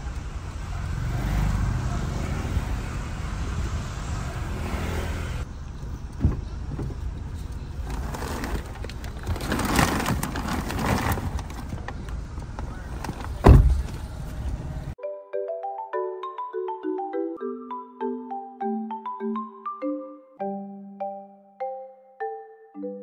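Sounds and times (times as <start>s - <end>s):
plastic rustling: 7.8s - 12.0s
low rumble inside car: 10.3s - 15.0s.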